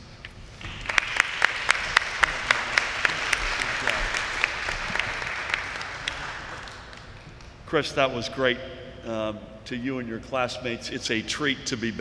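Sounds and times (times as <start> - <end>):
audience applauding: 0.6 - 7.5
close hands clapping: 0.6 - 7.6.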